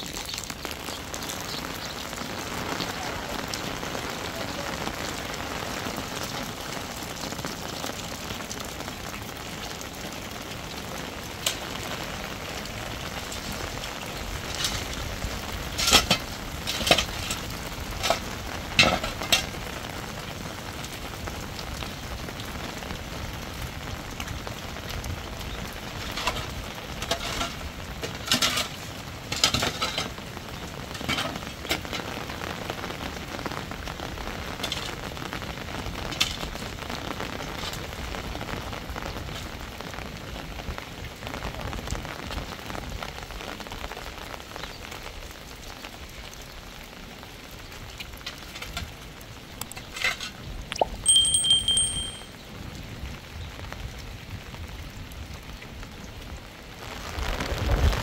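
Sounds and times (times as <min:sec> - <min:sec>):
heavy rain hissing: 0:00.0 - 0:51.2, 0:52.2 - 0:58.0
clicks and clatters: 0:15.7 - 0:17.4, 0:26.1 - 0:30.2, 0:49.6 - 0:52.3.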